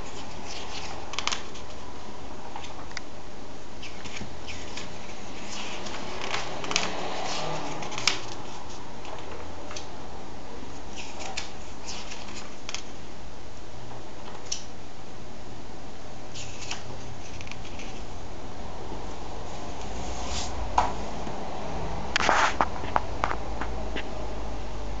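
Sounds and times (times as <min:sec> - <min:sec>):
paper pages rustling: 0:00.0 - 0:03.0, 0:03.8 - 0:09.9, 0:10.7 - 0:13.0, 0:16.3 - 0:18.2, 0:19.8 - 0:20.6, 0:22.2 - 0:23.0.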